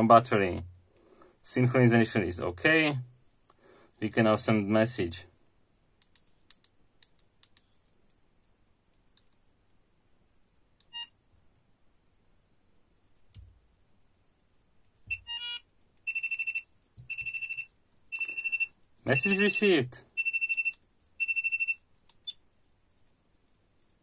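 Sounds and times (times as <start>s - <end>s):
buzzer beeps: 10.9s - 11.1s, 15.1s - 21.8s.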